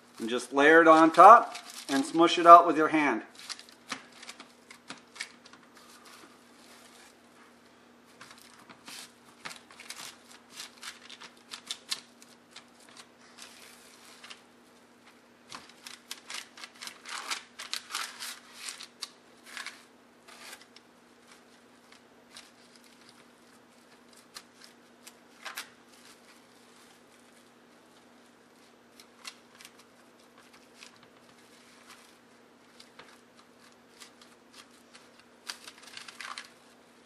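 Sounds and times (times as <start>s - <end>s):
plastic wrap crinkling: 0.0s - 2.5s, 3.2s - 37.0s
faint steady hum: 0.0s - 37.0s.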